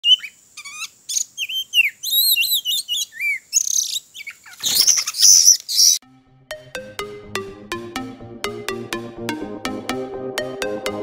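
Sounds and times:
bird whistling and scratchy calls: 0.0 - 6.0.

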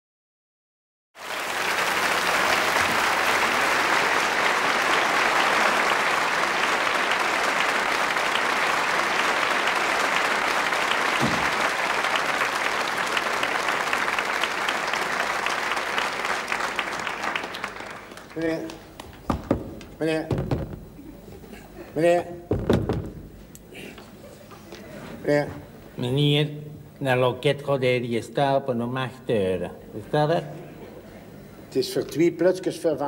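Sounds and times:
studio audience applauding: 1.2 - 20.0.

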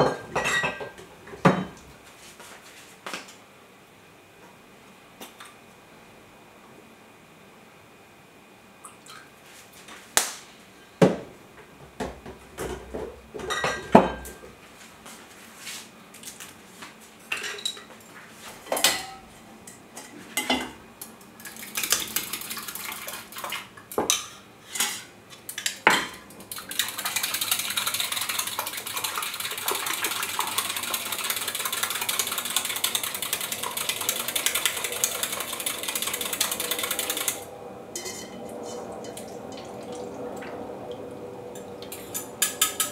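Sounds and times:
kitchen utensils clinking: 0.0 - 1.8, 12.6 - 14.4, 17.3 - 17.9, 18.6 - 19.4, 38.0 - 39.9, 41.6 - 42.9
eggs beaten in a glass jug: 21.4 - 23.7, 26.4 - 37.5.

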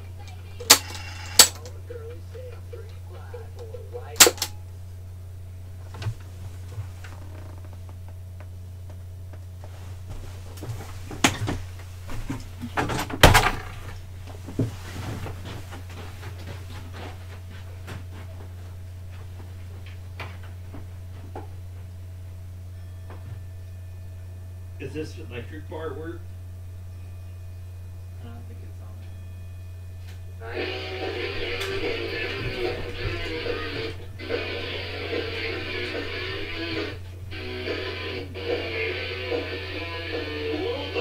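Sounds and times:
low electrical hum: 0.0 - 41.0
clattering knocks and thuds: 10.1 - 18.6.

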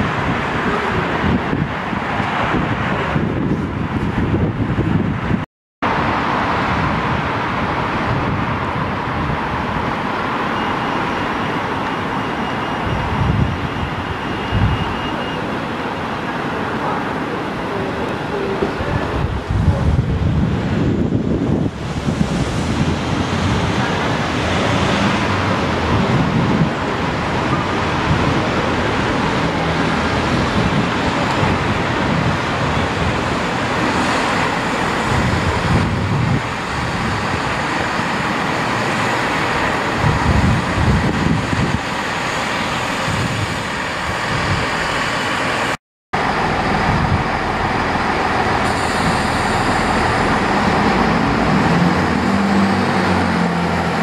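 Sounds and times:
wind buffeting microphone: 0.0 - 10.4, 12.8 - 15.1, 18.4 - 45.0, 46.2 - 54.0
diesel train engine and rail noise: 0.0 - 54.0.

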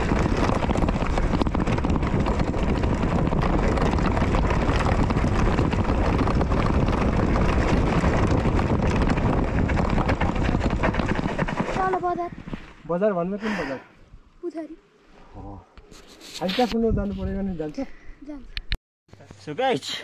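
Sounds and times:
wind buffeting microphone: 0.0 - 12.9.

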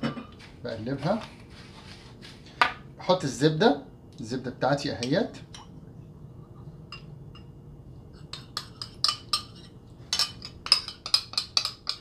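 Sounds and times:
metal spoon clinking on ceramic bowl: 6.9 - 7.6, 8.3 - 12.0.

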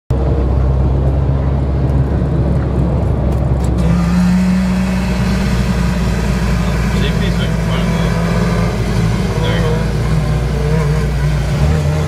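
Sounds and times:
drag racing engines idling: 3.1 - 12.0
engine revving: 3.3 - 12.0.

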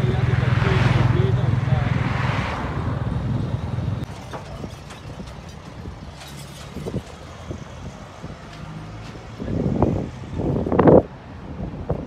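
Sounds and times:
vehicle engine running: 0.0 - 8.0
faint low engine hum: 0.0 - 11.0.

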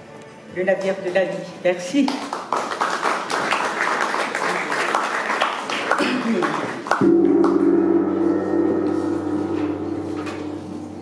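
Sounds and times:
audience applauding: 2.3 - 7.6
gong struck and ringing: 7.0 - 11.0.

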